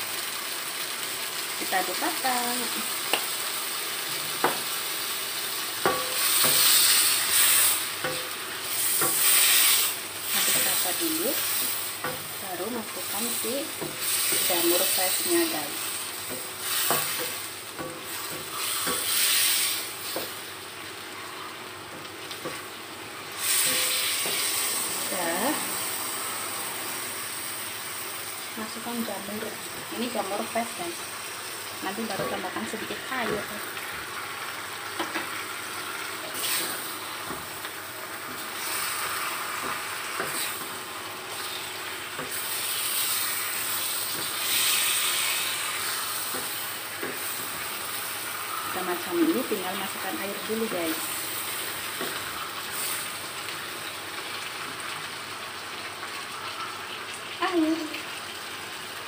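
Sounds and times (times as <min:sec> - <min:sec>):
chicken sizzling in a wok: 0:00.0 - 0:59.0
spatula knocking against pan: 0:05.8 - 0:06.7.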